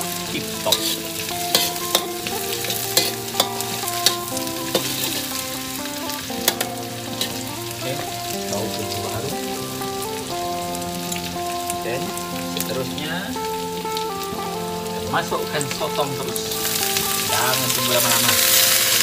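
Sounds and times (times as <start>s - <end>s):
background music of held notes: 0.0s - 19.0s
onions sizzling in hot oil: 0.0s - 19.0s
metal spatula clacking on wok: 0.7s - 5.2s, 6.4s - 7.4s.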